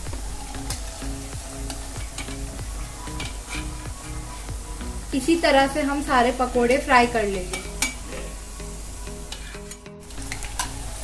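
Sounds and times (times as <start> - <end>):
oil sizzling and bubbling: 0.0 - 11.0
steel spoon stirring: 0.6 - 4.4, 7.5 - 8.4, 9.2 - 10.9.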